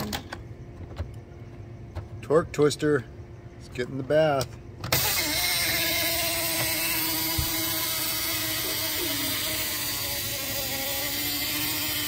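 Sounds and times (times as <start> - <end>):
small electric motor whirring: 4.9 - 12.0.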